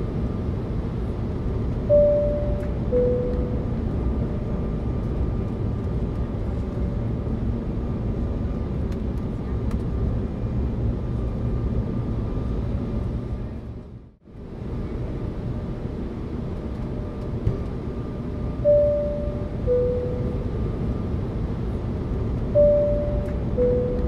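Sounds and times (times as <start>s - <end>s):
low cabin rumble: 0.0s - 24.0s
two-tone chime: 1.9s - 3.6s, 18.7s - 20.4s, 22.6s - 24.0s.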